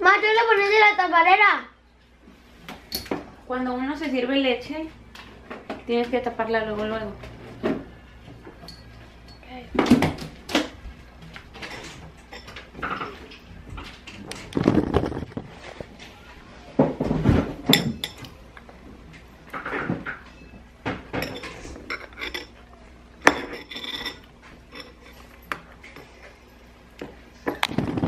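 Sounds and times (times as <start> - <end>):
dishes and cutlery clattering: 11.5 - 13.4, 17.0 - 18.3, 19.5 - 22.6, 23.3 - 26.1.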